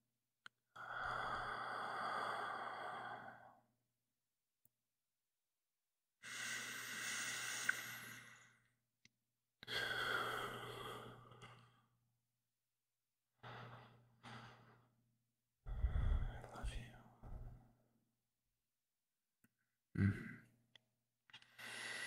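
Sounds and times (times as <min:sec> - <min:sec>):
man breathing and sighing: 0:15.7 - 0:17.6.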